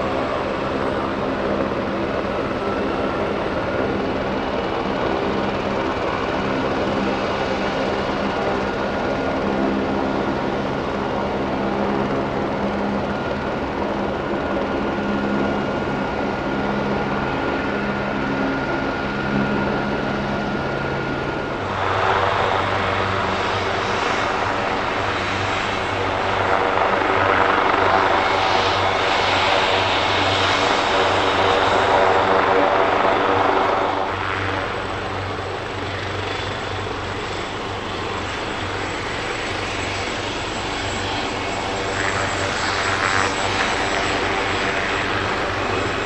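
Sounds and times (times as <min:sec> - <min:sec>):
helicopter turbine and rotor hum: 0:00.0 - 0:46.0.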